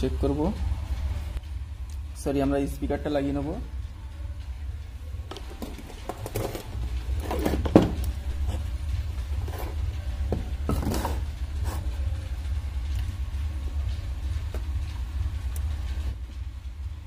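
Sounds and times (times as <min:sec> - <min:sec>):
steady low rumble: 0:00.0 - 0:17.0
knocks and rustles of handling: 0:05.3 - 0:08.7.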